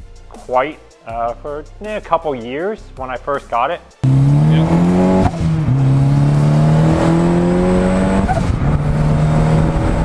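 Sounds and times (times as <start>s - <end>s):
turbocharged car engine: 4.0s - 10.0s.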